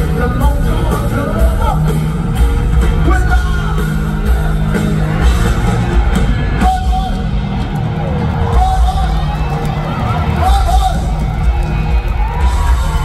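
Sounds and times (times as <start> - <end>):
singer's voice: 0.0 - 5.2
drums: 0.0 - 13.0
electric guitars: 0.0 - 13.0.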